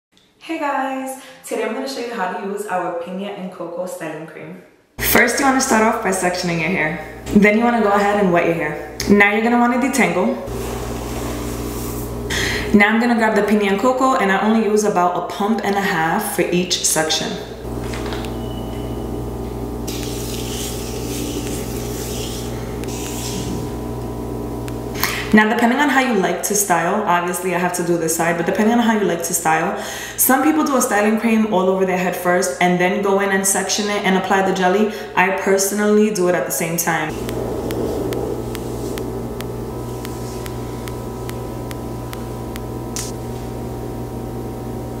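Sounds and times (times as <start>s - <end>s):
steady low hum: 5.0s - 27.1s, 37.0s - 45.0s
hands rubbing through wet hair: 19.9s - 23.8s, 37.2s - 41.4s
faint ticking: 37.1s - 43.2s.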